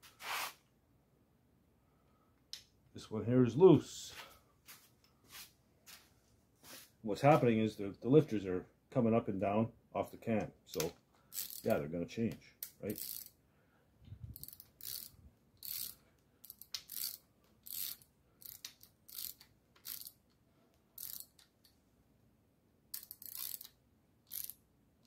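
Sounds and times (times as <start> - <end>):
socket ratchet clicking: 10.8 - 11.7, 12.6 - 13.3, 14.3 - 20.4, 21.0 - 21.7, 22.9 - 24.6.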